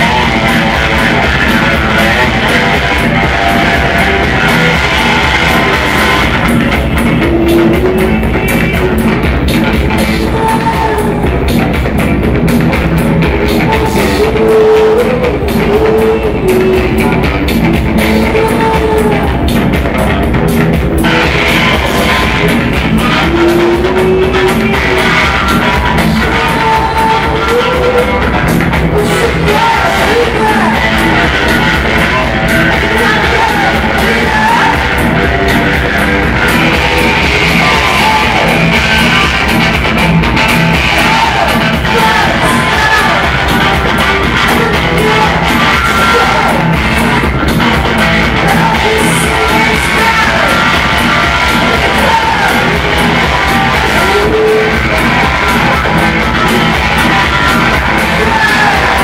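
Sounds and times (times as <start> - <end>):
bass guitar: 0.0 - 59.0
drums: 0.0 - 59.0
electric guitar: 0.0 - 59.0
woman singing: 9.8 - 11.5, 13.4 - 17.2, 17.9 - 19.6, 21.1 - 39.6.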